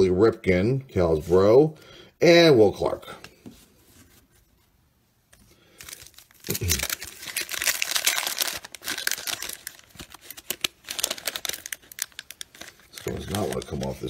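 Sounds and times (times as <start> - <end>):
card pack wrapper tearing: 5.7 - 14.0.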